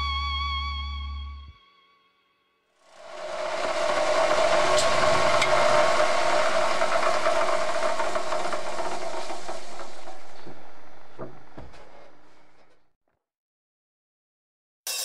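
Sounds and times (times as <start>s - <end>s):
power tool motor running: 2.9s - 11.1s.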